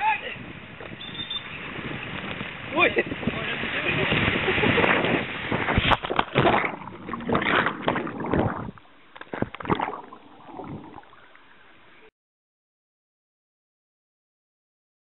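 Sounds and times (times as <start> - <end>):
water rushing down slide: 2.7 - 8.8
rider splashing into pool: 3.6 - 11.4
muffled underwater gurgling: 5.5 - 12.1.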